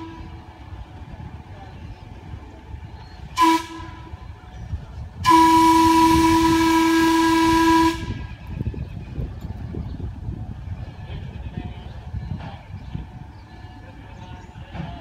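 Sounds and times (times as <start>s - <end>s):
steam locomotive whistle: 3.2s - 4.3s, 5.2s - 8.4s.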